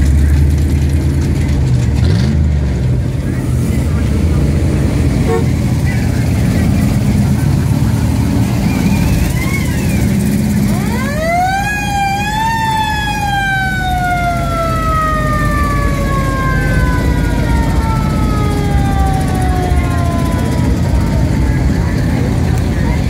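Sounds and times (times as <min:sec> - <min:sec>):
car engines rumbling: 0:00.0 - 0:23.0
siren wailing: 0:08.6 - 0:21.8.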